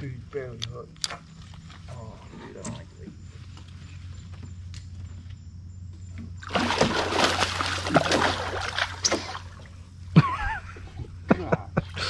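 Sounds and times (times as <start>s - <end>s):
low hum: 0.0s - 12.0s
fish thrashing and splashing: 6.4s - 9.8s.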